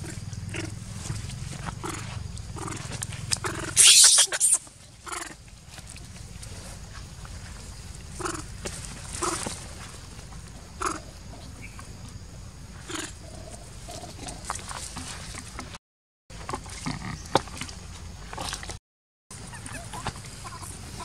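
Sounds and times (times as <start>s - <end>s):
baby monkey calling: 3.4s - 5.4s, 19.4s - 21.0s.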